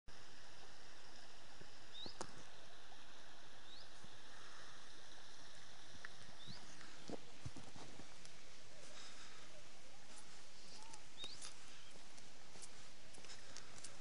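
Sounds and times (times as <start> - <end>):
bird chirping: 1.9 - 2.3, 3.6 - 4.0, 6.2 - 7.1, 10.6 - 12.1.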